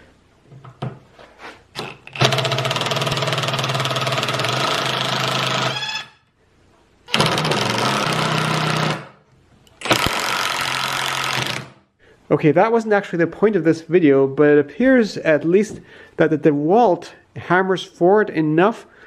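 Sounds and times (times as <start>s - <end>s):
impact driver rattling: 1.8s - 5.8s, 7.1s - 9.2s, 9.8s - 11.8s.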